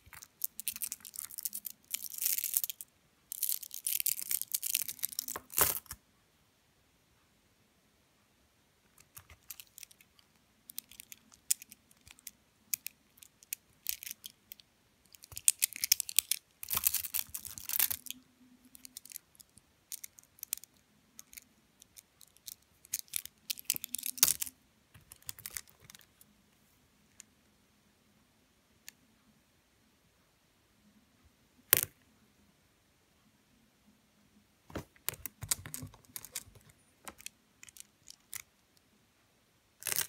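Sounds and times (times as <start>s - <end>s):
stones and beads clicking: 0.0s - 6.0s, 9.0s - 26.1s, 35.0s - 38.5s, 39.8s - 40.0s.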